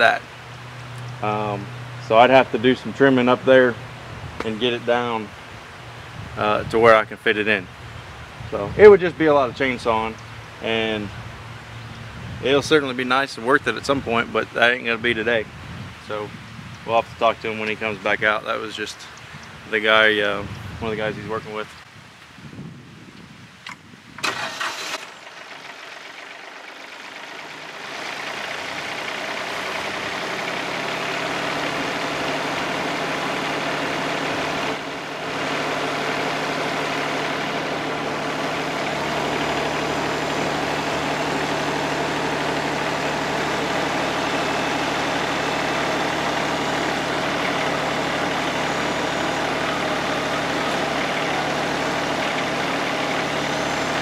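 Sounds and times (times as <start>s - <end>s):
sawmill engine running: 0.0s - 7.1s, 24.2s - 54.0s.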